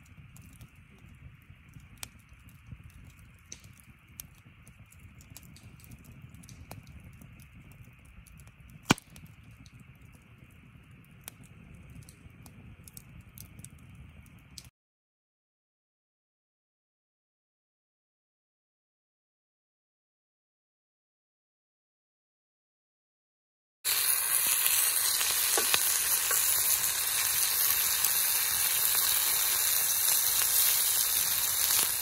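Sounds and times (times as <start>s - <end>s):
wood fire crackling: 0.0s - 14.7s, 23.9s - 32.0s.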